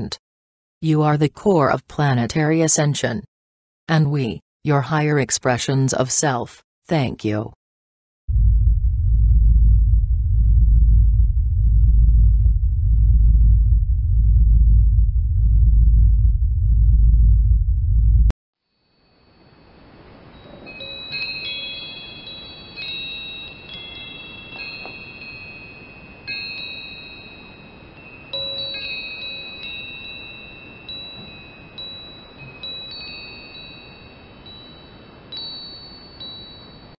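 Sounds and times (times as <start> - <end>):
wind chimes ringing: 18.8 - 36.9.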